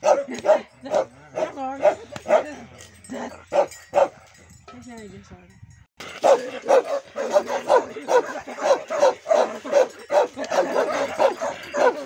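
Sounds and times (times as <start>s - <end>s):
dog barking: 0.0s - 2.6s, 3.5s - 4.2s, 6.0s - 12.0s.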